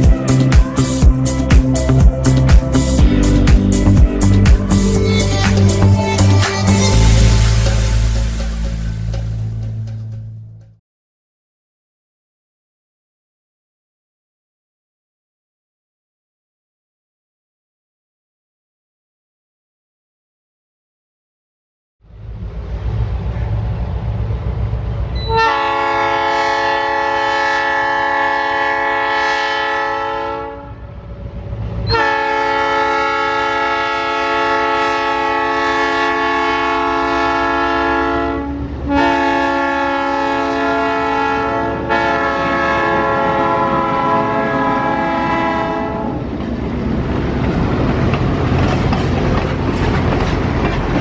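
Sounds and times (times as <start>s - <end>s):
train cars rumbling and clattering: 0.0s - 10.8s, 22.1s - 27.0s, 40.9s - 51.0s
train air horn blasts: 4.0s - 8.7s, 25.2s - 31.0s, 31.9s - 46.2s.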